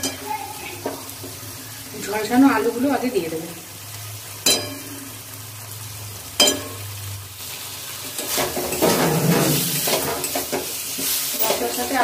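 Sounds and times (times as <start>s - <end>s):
masala sizzling: 0.0s - 12.0s
metal spatula scraping pan: 8.2s - 12.0s.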